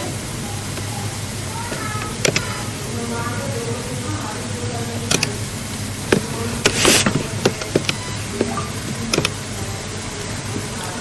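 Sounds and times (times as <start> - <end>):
sharp clicks: 1.7 - 2.7, 5.0 - 9.6
brief hiss: 6.6 - 7.3.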